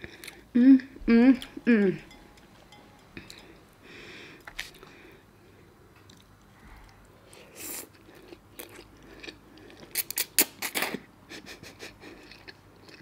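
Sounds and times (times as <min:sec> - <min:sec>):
quiet chewing: 0:05.9 - 0:10.3.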